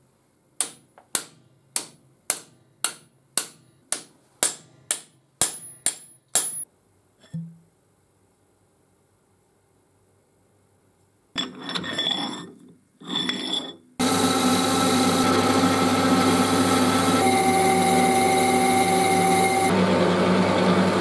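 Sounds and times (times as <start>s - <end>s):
machine whine: 14.0s - 21.0s
metal lathe cutting: 14.0s - 21.0s.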